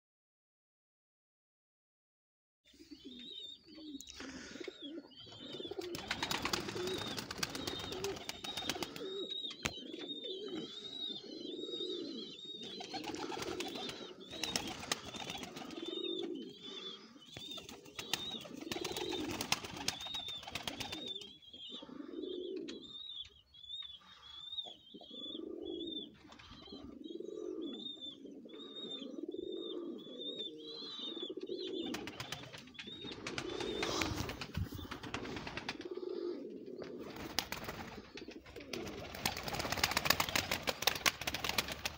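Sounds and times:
pigeons cooing: 0:02.7 - 0:41.9
rapid high chirping: 0:05.2 - 0:09.6, 0:17.4 - 0:21.4.

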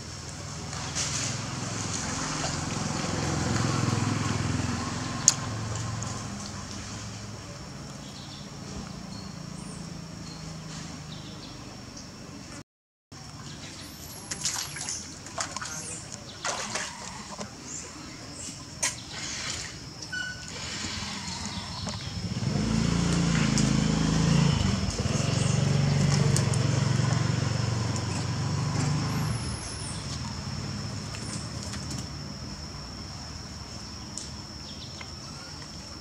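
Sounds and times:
water splashing and dripping: 0:00.2 - 0:07.4, 0:13.4 - 0:17.6, 0:18.5 - 0:32.2.

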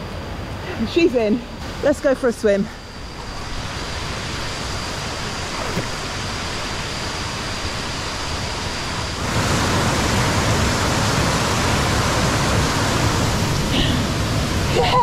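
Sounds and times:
waterfall rushing: 0:09.2 - 0:15.0.

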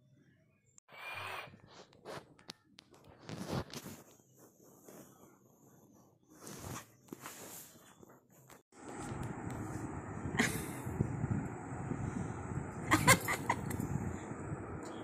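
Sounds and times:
bed sheets rustling: 0:03.2 - 0:09.1.

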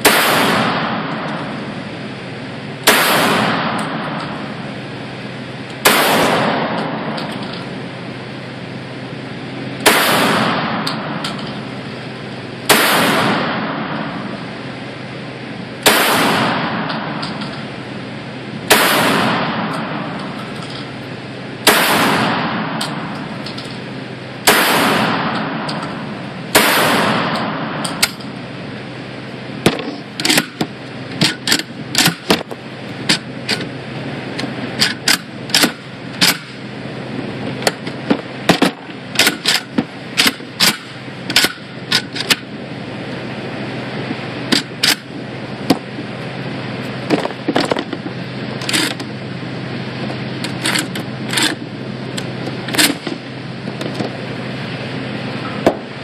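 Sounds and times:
shotgun shots with echo: 0:00.0 - 0:01.2, 0:02.9 - 0:04.2, 0:05.8 - 0:07.2, 0:09.8 - 0:11.2, 0:12.7 - 0:14.2, 0:15.8 - 0:17.2, 0:18.7 - 0:20.1, 0:21.6 - 0:23.0, 0:24.4 - 0:25.7, 0:26.5 - 0:27.8.

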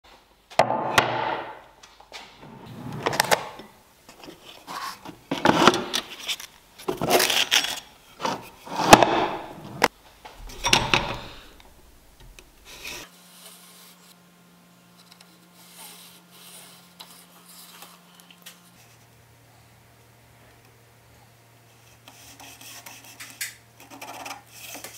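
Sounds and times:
sharp wooden knocks: 0:00.6 - 0:01.6
drawer pulled open on runners: 0:02.4 - 0:03.6
board sliding over wooden workbench: 0:02.4 - 0:03.7, 0:04.6 - 0:06.0, 0:08.2 - 0:11.8.

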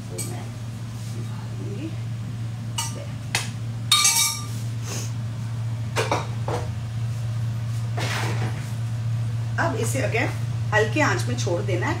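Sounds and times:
metal cookware clanking: 0:03.9 - 0:04.5
pan ringing against pan: 0:03.9 - 0:04.6.

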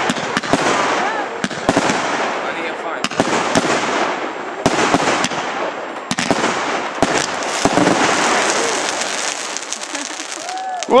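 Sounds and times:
continuous hiss: 0:00.0 - 0:11.0
fireworks bangs: 0:00.0 - 0:11.0.

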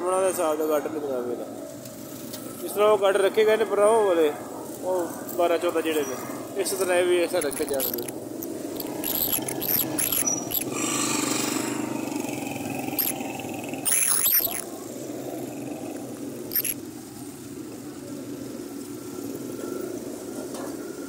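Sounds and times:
motorcycle and rickshaw traffic: 0:00.0 - 0:21.0
high-pitched wavering squeal: 0:08.7 - 0:10.9, 0:12.8 - 0:14.7, 0:15.4 - 0:16.8.

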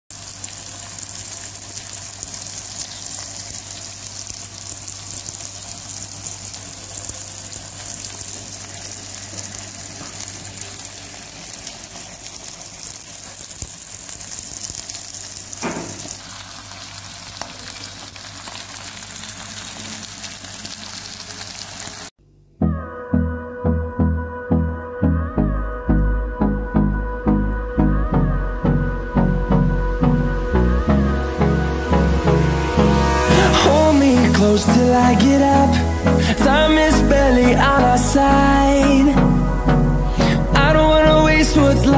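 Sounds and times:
chicken sizzling in oil: 0:00.1 - 0:22.1
low steady hum: 0:22.2 - 0:41.9.

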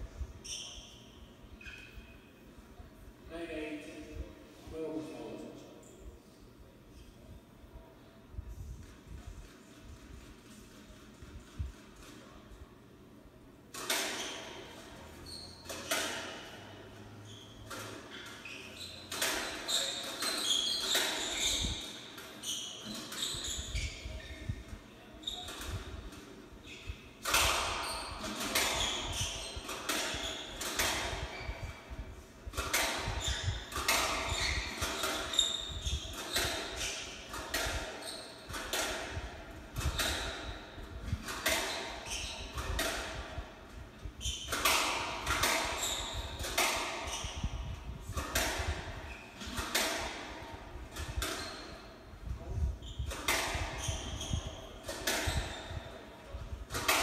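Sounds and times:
squash ball hitting racquets and walls: 0:13.7 - 0:57.0.

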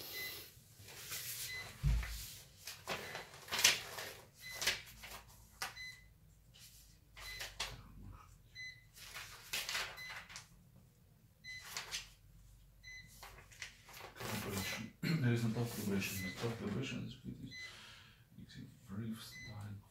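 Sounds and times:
paper pages rustling: 0:00.8 - 0:05.8, 0:08.9 - 0:10.6, 0:11.6 - 0:12.2, 0:13.1 - 0:14.8, 0:15.5 - 0:16.8.

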